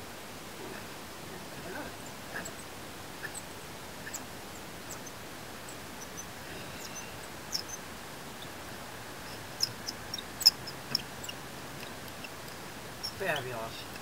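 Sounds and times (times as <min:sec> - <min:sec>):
ratchet squeaks and clicks: 0:06.9 - 0:07.8, 0:09.2 - 0:14.0.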